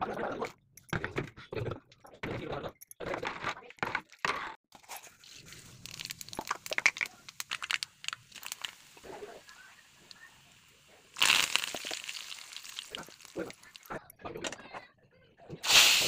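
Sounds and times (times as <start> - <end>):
hot oil sizzling and spitting: 5.0 - 14.0, 15.6 - 16.0.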